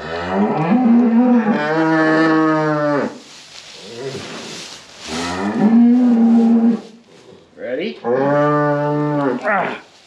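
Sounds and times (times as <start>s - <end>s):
cow mooing: 8.1s - 9.8s.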